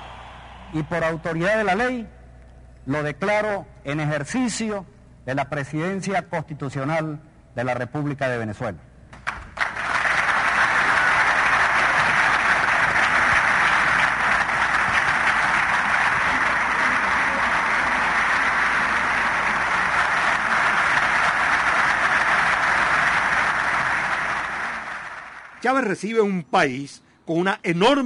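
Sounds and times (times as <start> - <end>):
audience applauding: 0.0 - 1.8, 9.2 - 25.9.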